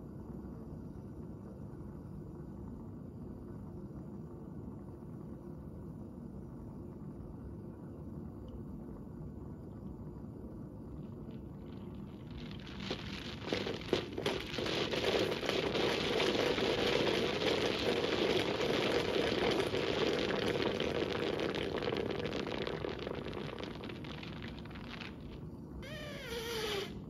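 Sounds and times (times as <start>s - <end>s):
model geyser erupting: 11.6s - 27.0s.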